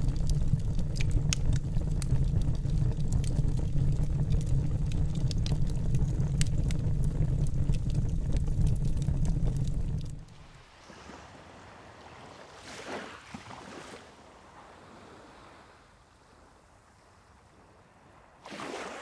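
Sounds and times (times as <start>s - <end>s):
wood fire crackling: 0.0s - 10.6s.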